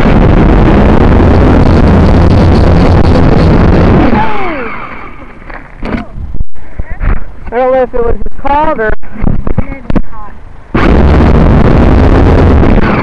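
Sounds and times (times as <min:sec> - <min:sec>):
drone propellers buzzing: 0:00.0 - 0:06.0, 0:10.8 - 0:13.0
steady low hum: 0:00.0 - 0:13.0.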